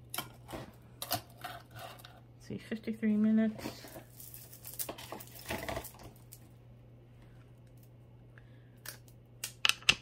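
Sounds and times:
low steady hum: 0.0s - 10.0s
jewelry beads and chain clinking: 3.7s - 6.5s.

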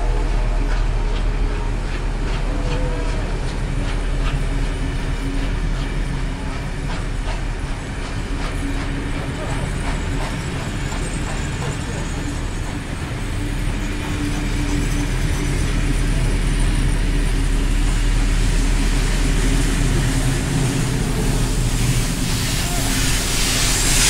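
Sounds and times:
train rumbling by: 0.0s - 24.0s.

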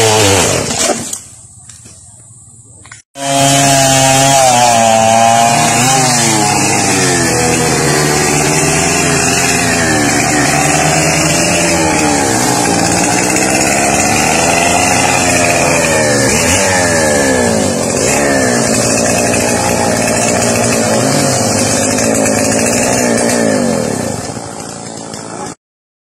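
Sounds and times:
chainsaw engine revving: 0.0s - 1.2s, 3.2s - 25.6s.

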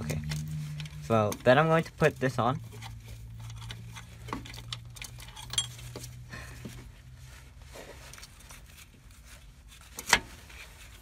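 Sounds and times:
low steady hum: 0.0s - 11.0s
metal brake parts clinking: 3.4s - 6.1s.

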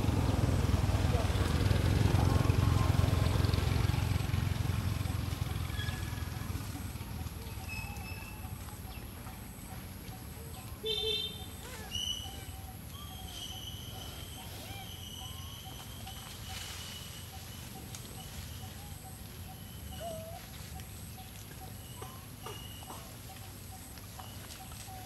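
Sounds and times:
bird calls and chirps: 5.4s - 25.0s.

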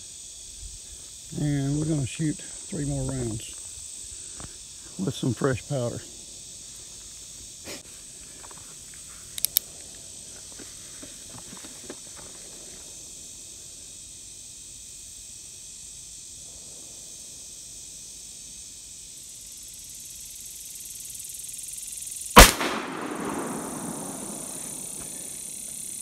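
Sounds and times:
revolver gunshot: 22.4s - 25.4s.

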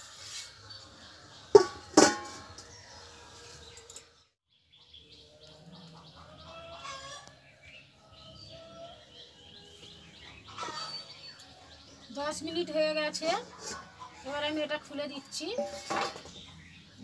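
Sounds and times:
birds chirping: 0.3s - 17.0s
steel plate clanking on bowl: 1.6s - 2.7s, 15.6s - 16.4s.

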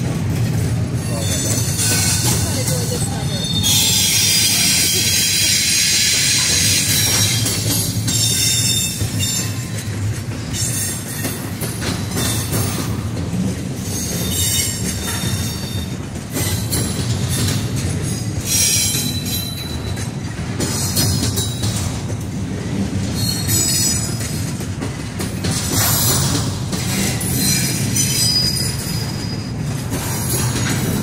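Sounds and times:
freight train wheels rumbling on rails: 0.0s - 31.0s
high-pitched wheel squeal: 3.1s - 7.5s.

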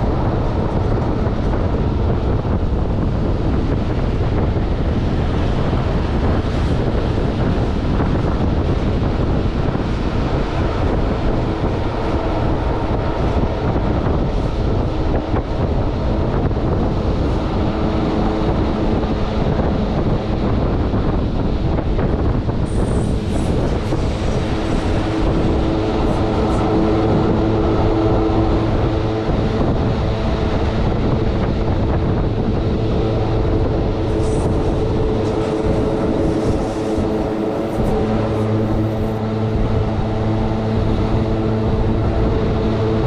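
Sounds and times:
train rumbling: 0.0s - 43.0s
wind buffeting microphone: 0.0s - 43.0s
faint whine: 9.2s - 43.0s.

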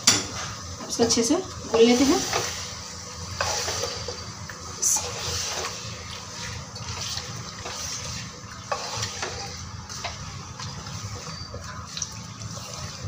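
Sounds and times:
wet stirring in a pot: 1.6s - 13.0s
spatula scraping and knocking pot: 6.9s - 11.8s.

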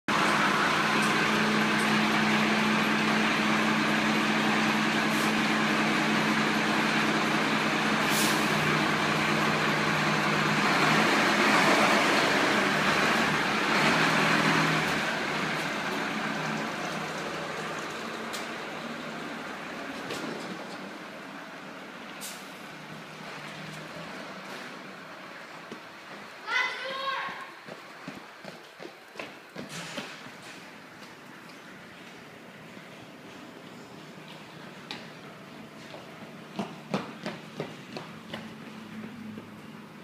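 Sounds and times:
diesel truck engine idling and revving: 0.0s - 26.4s.

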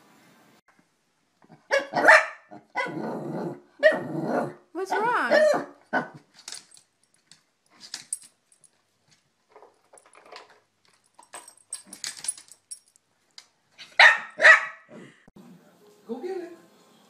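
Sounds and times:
dog barking: 1.7s - 3.0s, 3.8s - 6.2s, 13.9s - 15.0s.

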